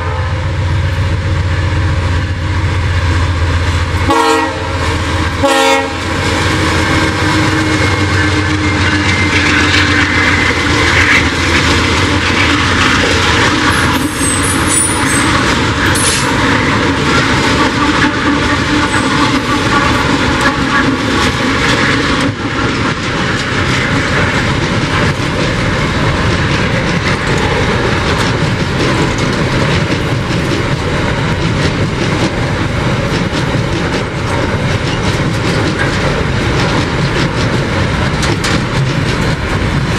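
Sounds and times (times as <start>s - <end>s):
train horn blast: 0.0s - 0.6s, 4.0s - 9.2s, 17.5s - 21.0s
clattering train wheels: 0.0s - 39.9s
diesel locomotive engines: 0.0s - 39.9s
high wheel squeal: 13.8s - 16.3s.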